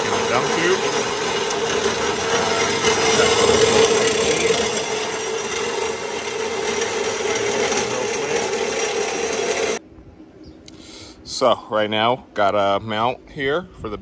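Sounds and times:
band saw cutting metal: 0.0s - 9.8s.

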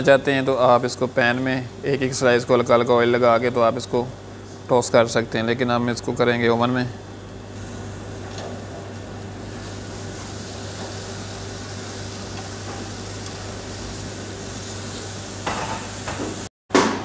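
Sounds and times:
chicken sizzling on a grill: 7.3s - 16.5s.

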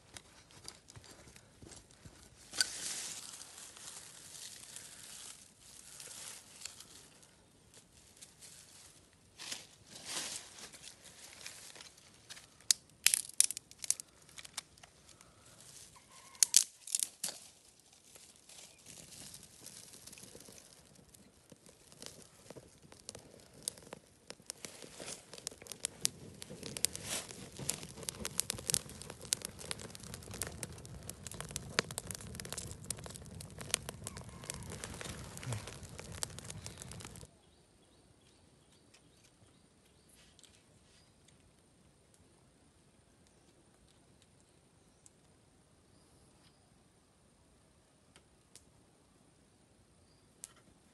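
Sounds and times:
fire crackling: 0.0s - 37.4s, 48.1s - 48.8s
twigs snapping: 11.3s - 15.4s, 16.4s - 37.3s.

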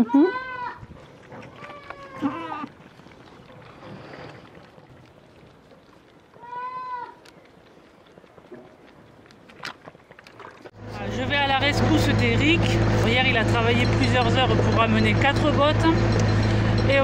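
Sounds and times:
goats bleating: 0.0s - 0.8s, 1.5s - 2.8s, 6.4s - 7.2s.

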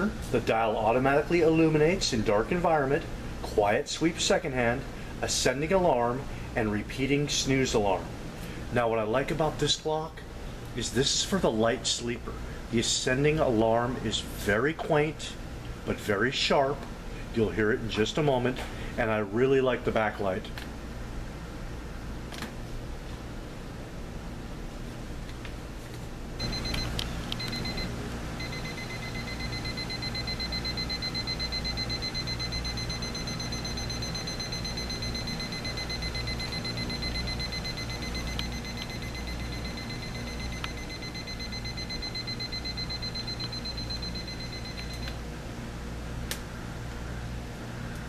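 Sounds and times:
alarm clock beeping: 26.4s - 45.1s.

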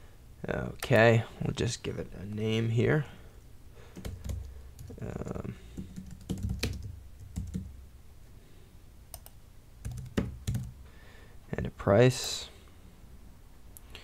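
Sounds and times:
computer keyboard typing: 3.9s - 7.7s, 9.1s - 10.8s.

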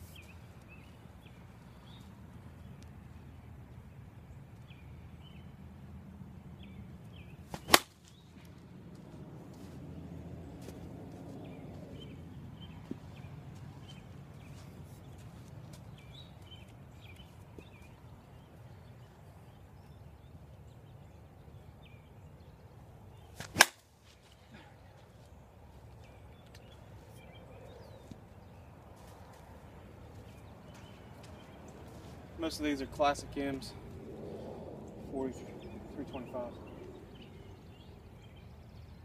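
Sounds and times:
bat hitting ball crack: 7.5s - 8.1s, 23.4s - 23.8s.

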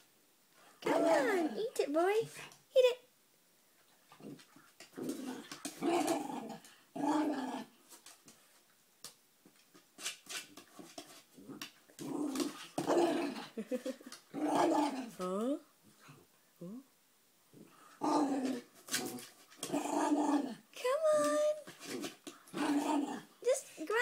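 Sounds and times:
puppy growling: 4.1s - 7.7s, 11.4s - 16.2s, 17.6s - 20.6s, 21.6s - 23.3s.

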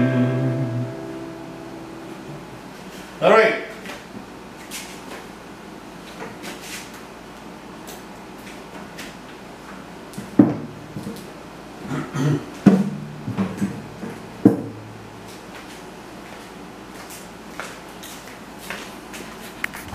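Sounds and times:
guitar strings ringing: 0.0s - 2.6s, 12.0s - 15.4s
guitar knocks and bumps: 10.2s - 11.3s, 12.5s - 15.4s.

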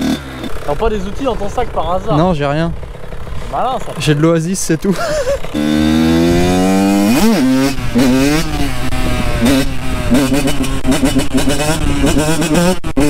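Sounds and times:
two-stroke dirt bike engine revving: 0.0s - 13.0s.

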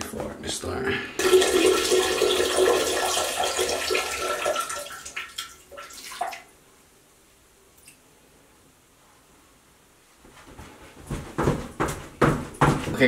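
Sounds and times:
urine splashing into toilet water: 1.2s - 6.5s.

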